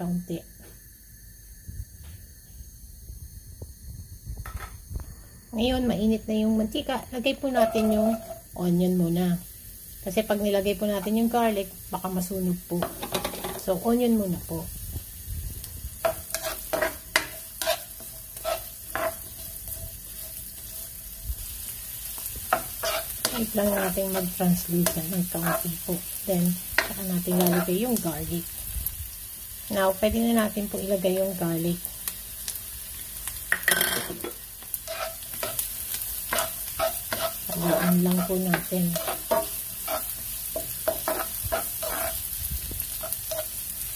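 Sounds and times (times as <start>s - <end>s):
onion sizzling in hot oil: 2.7s - 43.9s
spatula scraping a pan: 7.5s - 8.5s, 16.0s - 25.7s, 26.8s - 27.8s, 33.7s - 43.6s.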